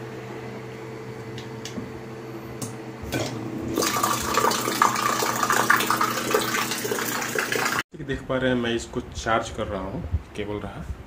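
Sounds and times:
water pump motor hum: 0:02.6 - 0:07.8.

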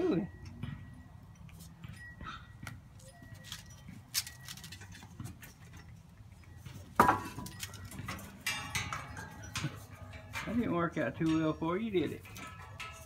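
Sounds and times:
loud clatter with ring: 0:07.0 - 0:13.0.

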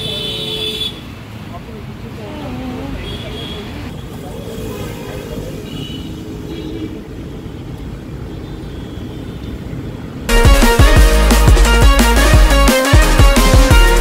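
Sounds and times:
traffic rumble: 0:00.0 - 0:10.3
electronic music with heavy beat: 0:10.3 - 0:14.0.

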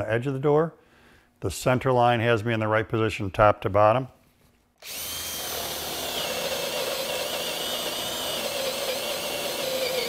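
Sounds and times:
cordless drill boring wood: 0:04.8 - 0:10.0.

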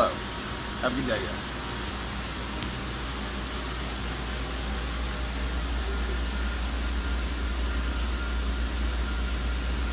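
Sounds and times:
low machine rumble: 0:00.0 - 0:09.9.

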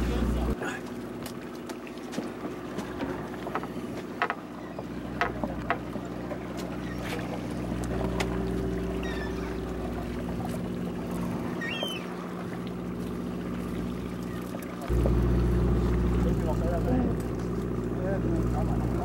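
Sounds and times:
boat engine humming: 0:00.0 - 0:19.0.

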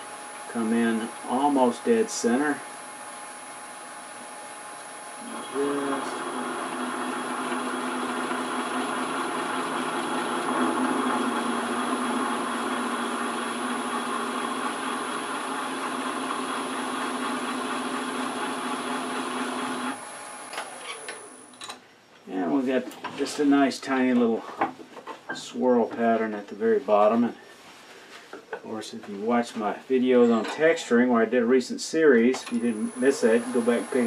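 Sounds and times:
texturing tool buzzing on wood: 0:05.2 - 0:21.4, 0:32.6 - 0:34.0.

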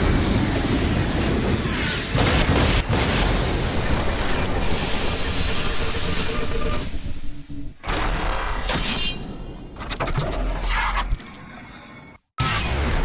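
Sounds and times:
energy blast explosion: 0:00.0 - 0:06.2.

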